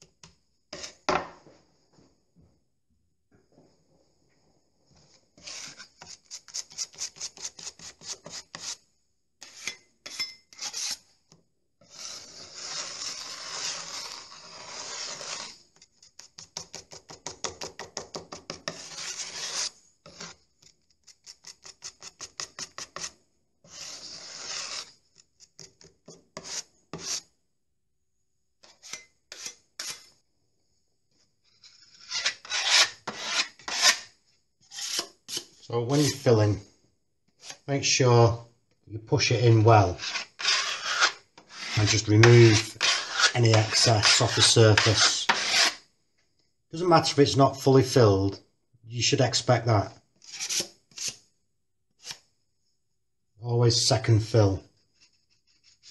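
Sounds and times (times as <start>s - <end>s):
filling knife scraping filler: 5.4s - 8.8s, 11.8s - 16.7s, 18.7s - 25.7s, 28.7s - 30.1s, 31.6s - 34.1s, 34.7s - 36.3s, 39.8s - 45.8s, 50.3s - 51.2s.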